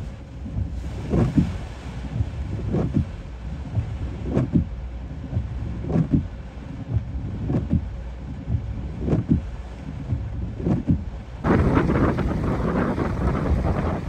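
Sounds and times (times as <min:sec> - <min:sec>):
wind and rain rumble: 0:00.0 - 0:14.0
windshield wiper sweeping: 0:00.0 - 0:14.0.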